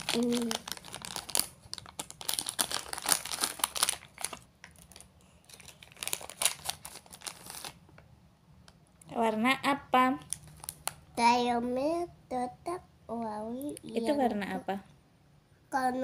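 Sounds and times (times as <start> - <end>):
plastic wrapper crinkling: 0.0 - 8.0, 10.2 - 11.1.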